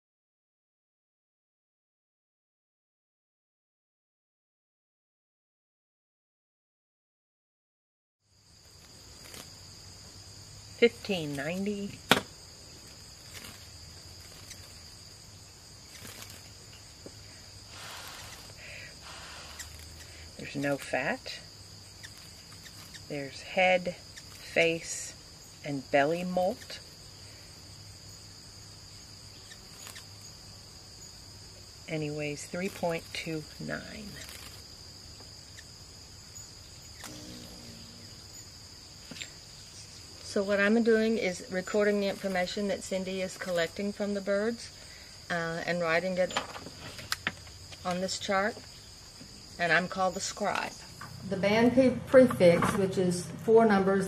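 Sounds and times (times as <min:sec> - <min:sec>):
crickets chirping: 0:08.2 - 0:54.0
insects trilling: 0:08.2 - 0:54.0
faint handling ticks: 0:15.9 - 0:23.4.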